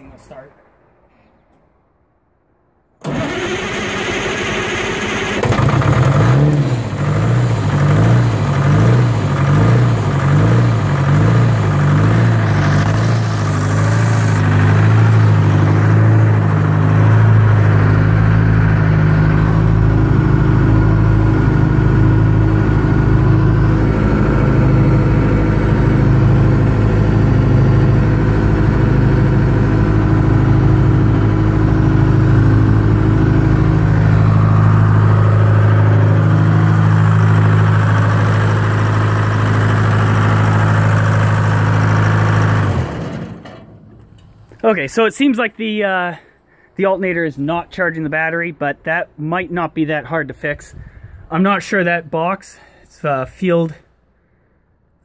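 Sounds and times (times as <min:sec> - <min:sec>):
diesel engine idling: 0:03.0 - 0:45.0.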